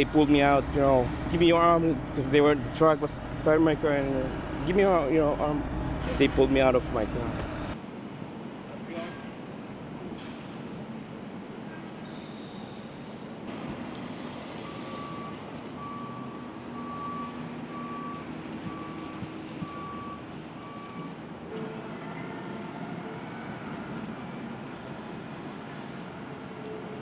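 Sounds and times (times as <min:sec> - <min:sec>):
street traffic noise: 0:00.0 - 0:27.0
vehicle backup alarm beeping: 0:14.5 - 0:24.1.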